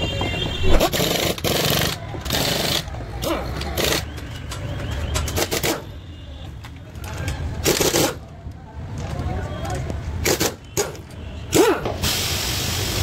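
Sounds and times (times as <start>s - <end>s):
pneumatic impact wrench bursts: 0.8s - 2.9s, 3.6s - 4.1s, 7.6s - 8.2s, 10.2s - 13.0s.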